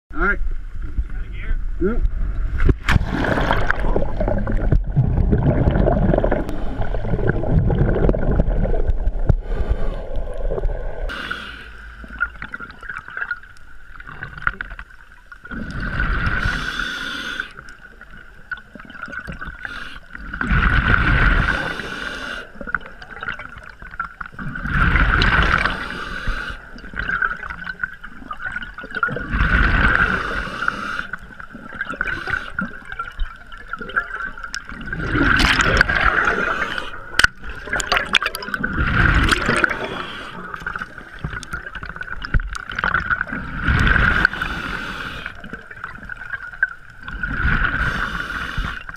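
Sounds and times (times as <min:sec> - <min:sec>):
underwater rushing and bubbles: 0:00.4 - 0:48.9
diver exhaling bubbles: 0:02.6 - 0:13.3, 0:15.5 - 0:17.6, 0:24.3 - 0:27.8, 0:28.5 - 0:32.8, 0:33.7 - 0:46.2.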